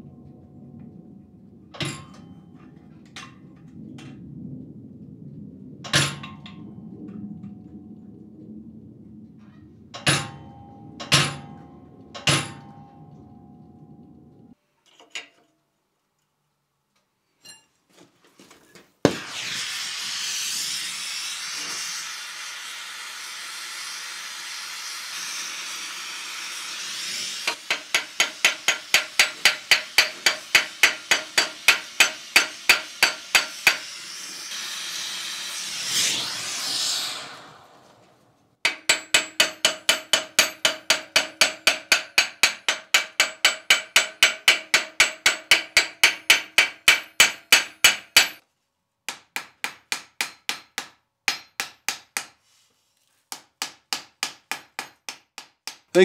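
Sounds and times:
hammer blows on hot steel: 9.9s - 13.1s, 20.2s - 38.0s, 38.6s - 48.4s
gas torch flame hissing: 19.1s - 38.2s.

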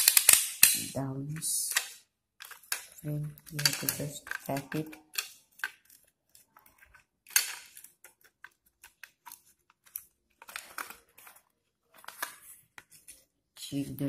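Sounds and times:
small plastic clicks: 0.0s - 0.8s, 1.6s - 11.4s
plastic rubbing scrapes: 1.8s - 13.3s.

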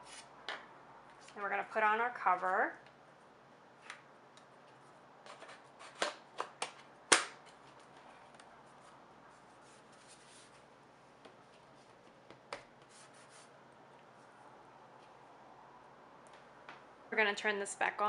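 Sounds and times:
laptop being handled: 3.8s - 13.2s.

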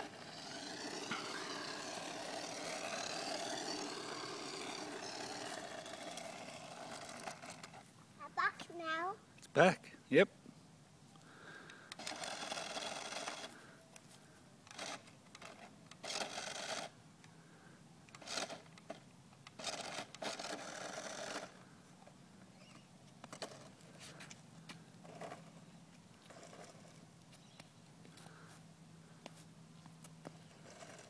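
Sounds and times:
toy car electric motor whirring: 0.0s - 7.9s, 11.8s - 13.8s, 14.6s - 17.4s, 18.1s - 21.7s, 22.6s - 24.4s, 25.0s - 25.6s, 26.2s - 27.1s, 30.2s - 31.0s.

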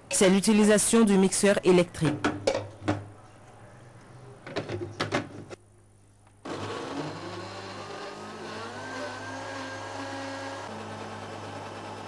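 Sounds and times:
electric blender running: 6.4s - 12.0s.

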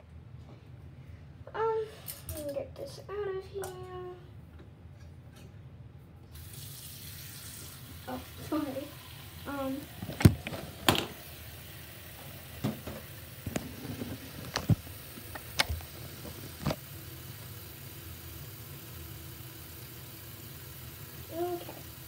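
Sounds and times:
faucet running into sink: 6.4s - 13.6s.

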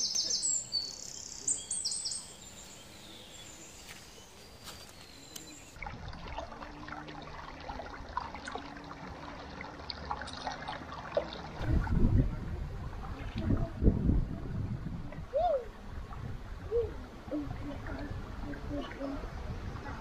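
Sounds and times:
small bird chirping: 0.0s - 5.8s
river water trickling: 0.0s - 20.0s.

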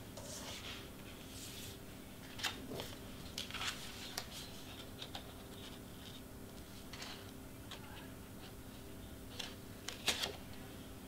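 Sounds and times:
cardstock rustling and scraping: 0.2s - 8.0s.

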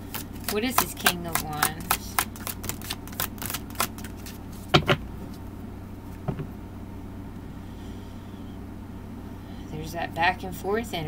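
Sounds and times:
cards being shuffled: 0.0s - 5.4s
low steady hum: 0.0s - 11.0s.

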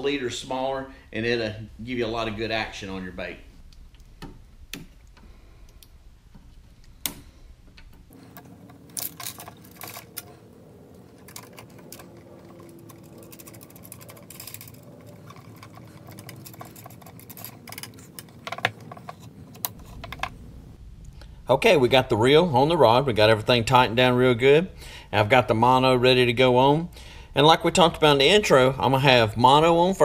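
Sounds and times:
reel seat collar screwing: 7.9s - 20.4s.

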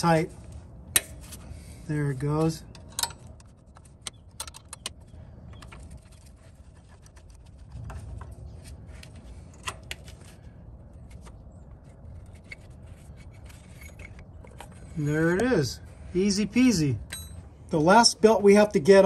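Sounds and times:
low steady rumble: 0.0s - 19.0s
wrench clinking on metal: 17.0s - 17.4s.

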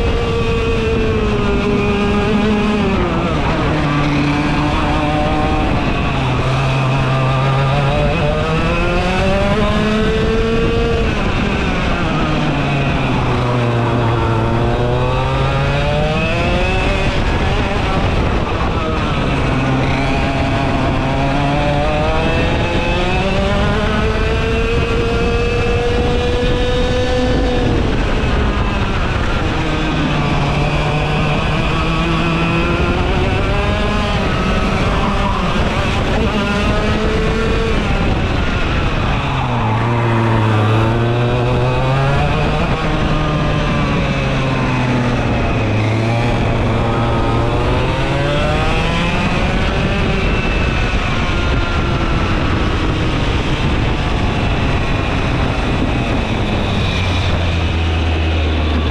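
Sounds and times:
kart engine revving: 0.0s - 58.9s.

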